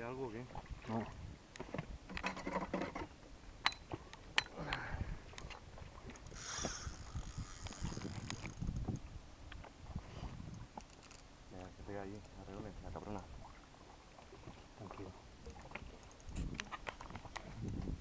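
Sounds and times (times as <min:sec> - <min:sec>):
fishing reel whirring: 0:06.2 - 0:09.0.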